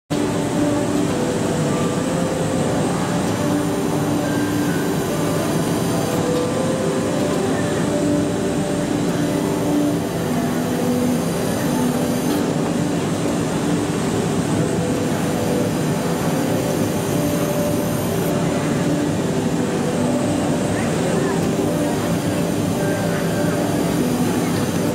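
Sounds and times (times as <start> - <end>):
machine noise: 0.1 - 24.9
distant overlapping voices: 0.3 - 24.9.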